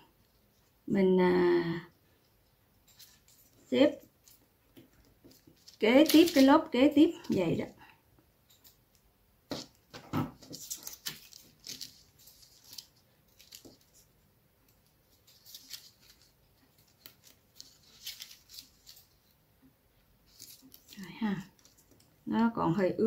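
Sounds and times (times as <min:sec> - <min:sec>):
paper rustling and crinkling: 0:02.8 - 0:07.7, 0:09.5 - 0:19.4, 0:20.1 - 0:22.3.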